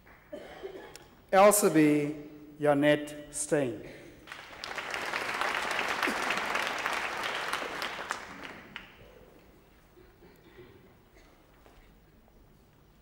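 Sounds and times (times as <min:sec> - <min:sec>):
audience applauding: 0:04.3 - 0:09.4.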